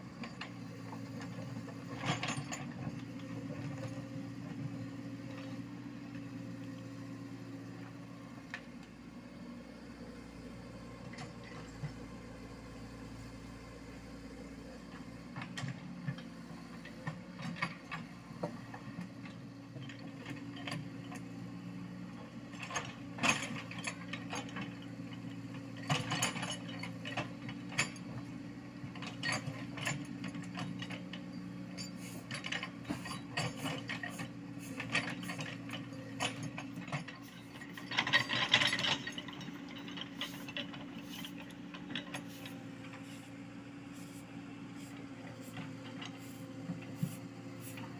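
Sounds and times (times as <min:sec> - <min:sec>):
diesel engine running: 0:00.0 - 0:47.9
soil and stones clattering: 0:31.9 - 0:42.4.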